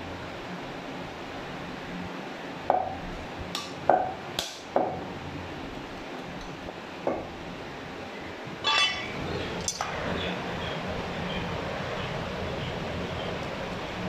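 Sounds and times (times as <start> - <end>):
low background noise: 0.0 - 14.0
ringing metallic clink: 8.6 - 9.9.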